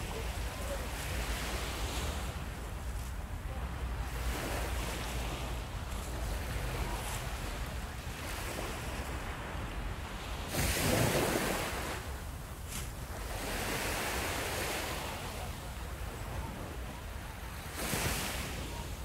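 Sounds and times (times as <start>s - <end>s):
surf washing onto sandy beach: 0.0s - 19.0s
wind rumbling on microphone: 0.0s - 19.0s.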